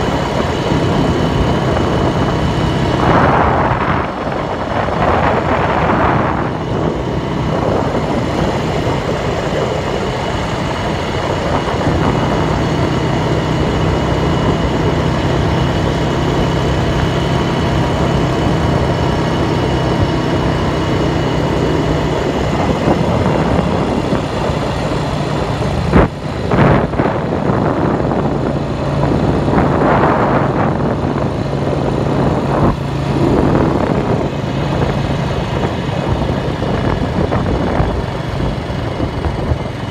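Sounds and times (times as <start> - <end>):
heavy rushing noise: 0.0 - 39.9
tractor engine running: 0.0 - 39.9.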